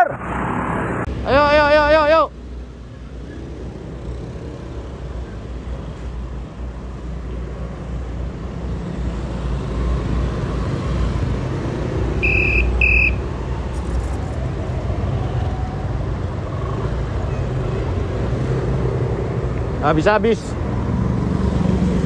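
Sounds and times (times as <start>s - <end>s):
traffic rumble: 0.0s - 22.0s
short high beeps: 12.2s - 13.2s.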